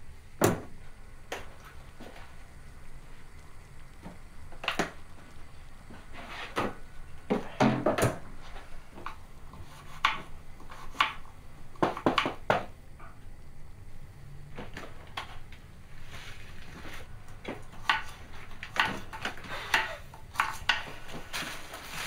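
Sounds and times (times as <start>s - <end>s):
clicks and knocks of kitchen work: 4.0s - 5.4s, 6.2s - 9.2s, 11.8s - 13.2s, 17.3s - 22.0s.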